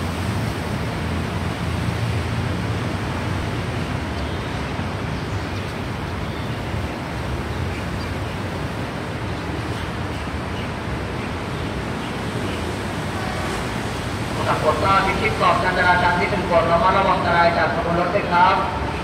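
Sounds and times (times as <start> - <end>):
road traffic: 0.0 - 19.0.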